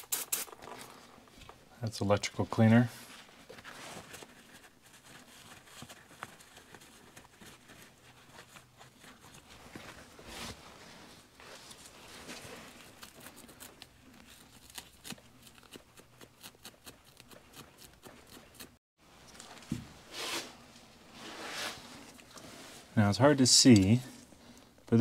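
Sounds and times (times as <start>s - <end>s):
cloth rustling: 3.0s - 14.4s.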